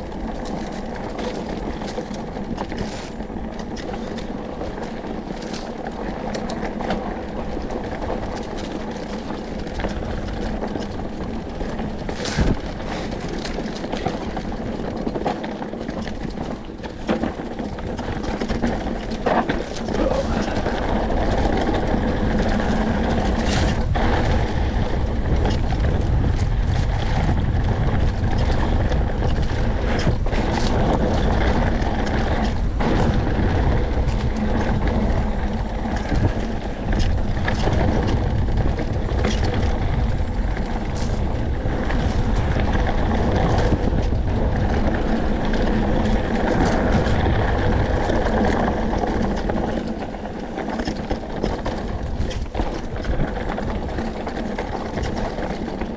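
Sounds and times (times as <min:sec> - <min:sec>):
bike clattering over rocks: 0:00.0 - 0:55.9
bike tyres rumbling on dirt: 0:00.0 - 0:55.9
wind rush on microphone: 0:00.0 - 0:55.9.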